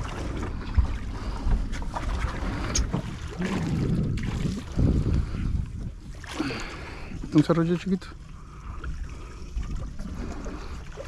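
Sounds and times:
wind rumbling on microphone: 0:00.0 - 0:07.5
water washing against boat hull: 0:00.0 - 0:11.0.

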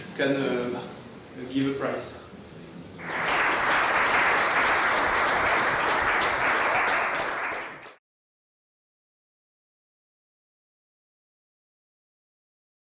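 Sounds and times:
audience applauding: 0:03.0 - 0:08.0.

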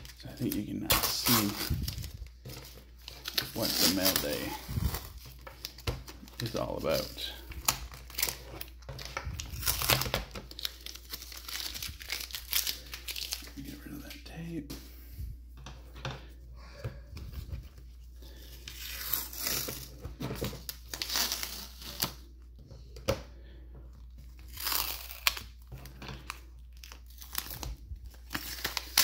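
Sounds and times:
tape crinkling: 0:00.0 - 0:14.3, 0:17.3 - 0:22.4, 0:24.2 - 0:29.0
tape peeling off plastic: 0:07.6 - 0:13.6, 0:20.6 - 0:22.2, 0:24.4 - 0:29.0.

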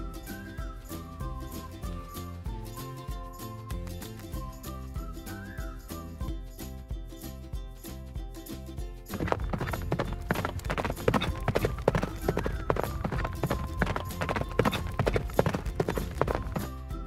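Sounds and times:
cheerful background music: 0:00.0 - 0:17.0
horse hooves clip-clopping: 0:09.0 - 0:16.8.

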